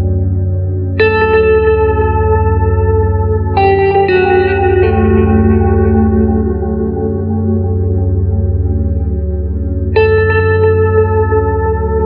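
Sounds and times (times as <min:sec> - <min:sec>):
music with sustained notes: 0:00.0 - 0:12.0
steady low drone: 0:00.0 - 0:12.0.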